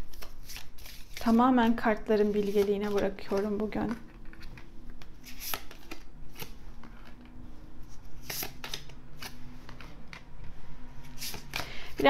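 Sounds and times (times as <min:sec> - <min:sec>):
paper cards rustling and sliding: 0:00.0 - 0:12.0
crisp card snaps: 0:08.2 - 0:10.2.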